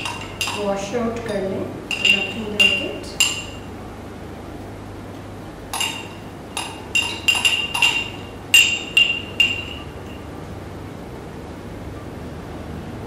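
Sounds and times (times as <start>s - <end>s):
spoon clinking on glass jar: 0.0s - 0.8s, 1.9s - 3.7s, 5.7s - 10.2s.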